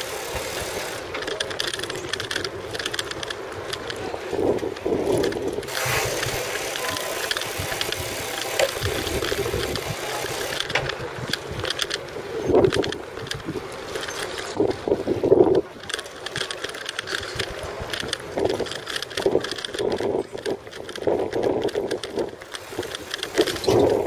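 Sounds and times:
bicycle rattling over stone paving: 0.0 - 24.0
wind gusts on microphone: 1.9 - 24.0.

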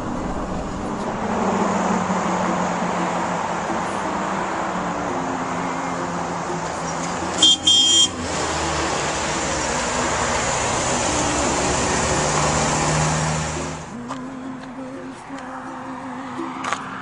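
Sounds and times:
street traffic noise: 0.0 - 17.0
high-pitched horn toots: 7.3 - 8.3.

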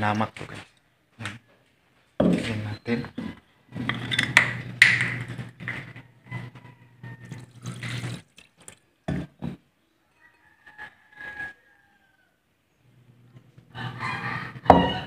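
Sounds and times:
vinegar pouring into a pot: 7.2 - 8.8.

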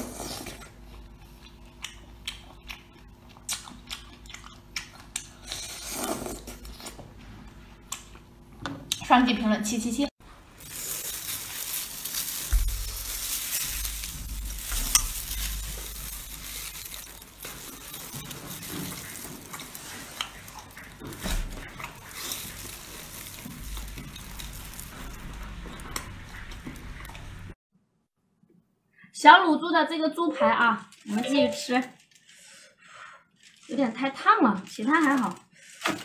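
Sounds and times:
close chewing and biting: 0.0 - 7.0, 10.6 - 27.4
wet crackle: 10.6 - 27.3.

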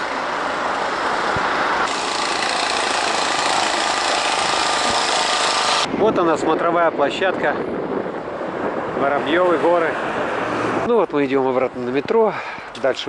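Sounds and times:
jackhammer hammering pavement: 1.9 - 5.9.

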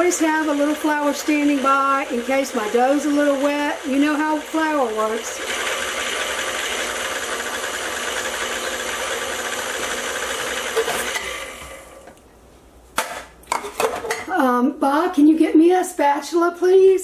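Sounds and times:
electric stand mixer running: 0.0 - 12.1.

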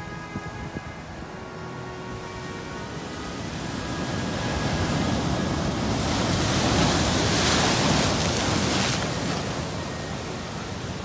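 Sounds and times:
wave breaking on shore: 2.6 - 11.0.

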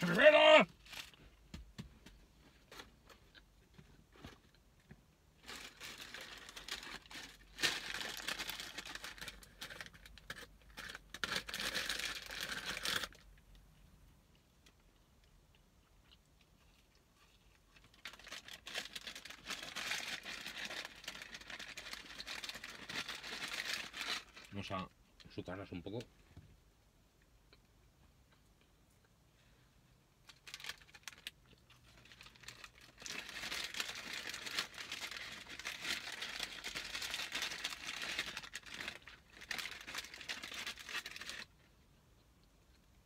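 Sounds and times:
paper bag crinkling: 5.4 - 13.2, 18.0 - 24.5, 32.0 - 41.5.

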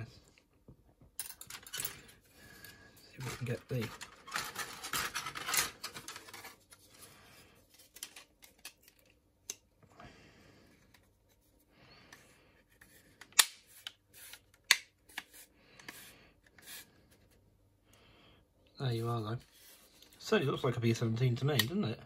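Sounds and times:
plastic parts rustling in a box: 3.2 - 7.0.

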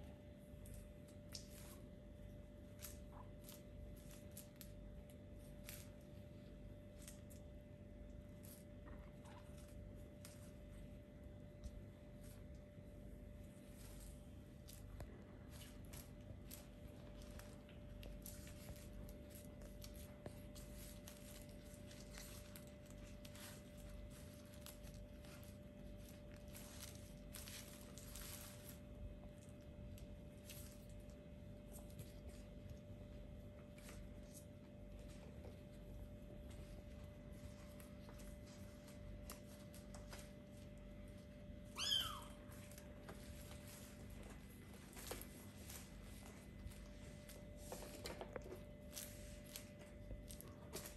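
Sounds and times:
steady low hum: 0.0 - 50.9
kittens scrabbling and scraping: 0.9 - 50.9
kitten meowing: 41.7 - 42.5.

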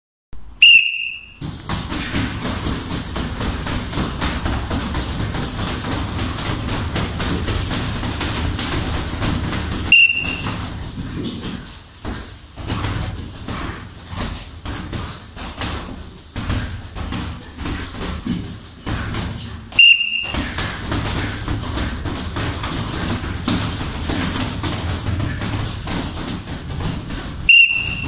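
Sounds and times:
gloved punches on heavy bags: 0.6 - 28.0
shuffling feet: 0.6 - 28.0
high signal tone: 10.0 - 10.4, 19.8 - 20.3.

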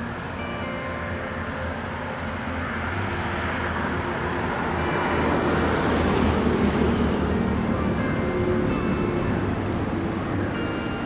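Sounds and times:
faint music notes: 0.0 - 11.0
passing vehicle rumbling: 0.0 - 11.0.

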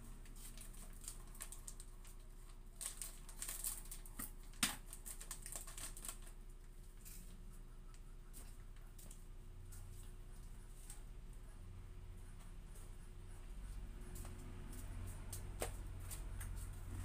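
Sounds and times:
plastic bag crinkling: 0.1 - 7.4.

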